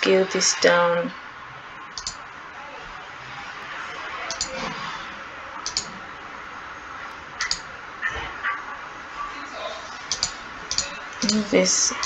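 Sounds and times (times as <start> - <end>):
microphone room hiss: 0.0 - 12.0
computer mouse clicks: 1.9 - 2.2, 4.3 - 4.6, 5.6 - 5.9, 7.4 - 7.7, 10.1 - 11.4.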